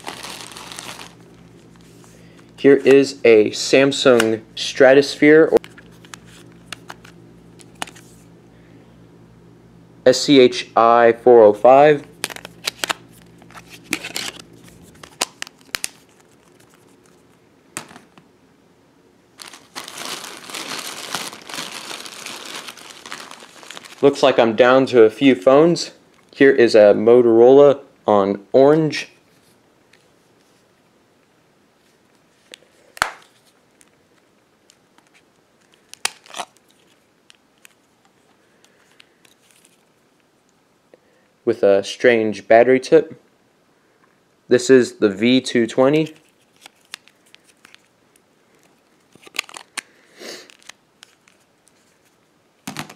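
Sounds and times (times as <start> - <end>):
plastic cover snapping: 0.0 - 1.2, 12.1 - 17.2, 19.4 - 24.0, 32.9 - 33.9, 35.0 - 37.8, 48.6 - 51.4
plastic bag crinkling: 0.0 - 2.2, 12.0 - 18.1, 19.4 - 24.9, 35.0 - 39.9, 46.0 - 52.2.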